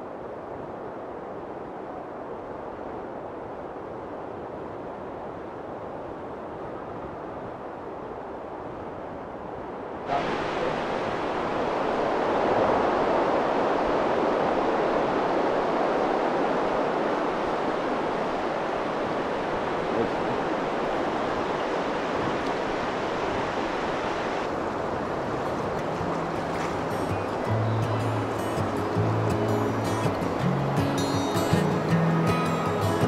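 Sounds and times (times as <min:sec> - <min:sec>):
stream water rushing: 0:10.0 - 0:33.0.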